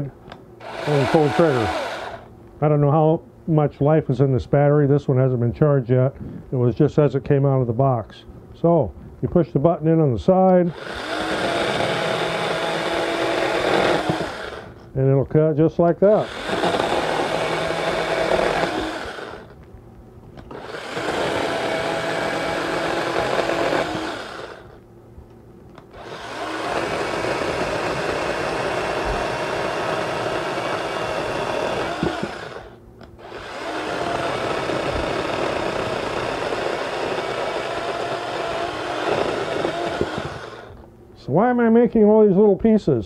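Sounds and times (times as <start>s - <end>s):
mini chainsaw cutting branch: 0.6s - 2.3s, 10.7s - 14.8s, 16.2s - 19.6s, 25.9s - 40.8s.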